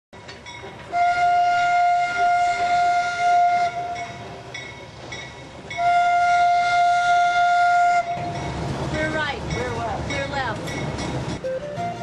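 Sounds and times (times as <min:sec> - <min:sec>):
locomotive air horn blasts: 0:00.9 - 0:04.2, 0:05.8 - 0:08.4.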